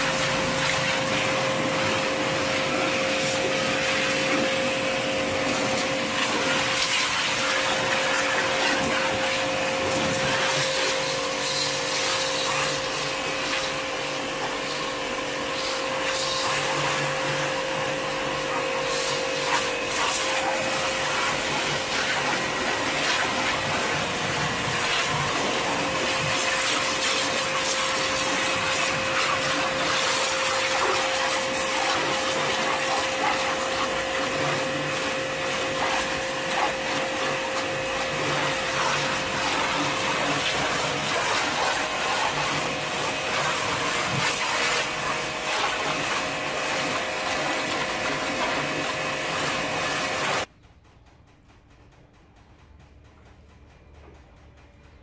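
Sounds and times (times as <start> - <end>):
pressure washer motor humming: 0.0 - 50.5
water jet hissing on car: 0.0 - 50.5.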